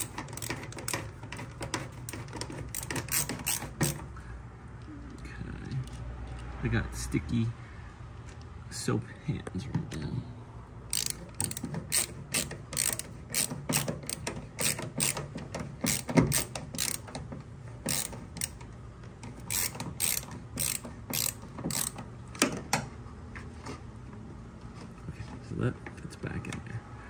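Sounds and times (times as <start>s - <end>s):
screwdriver clicking on sheet metal: 0.0s - 4.0s.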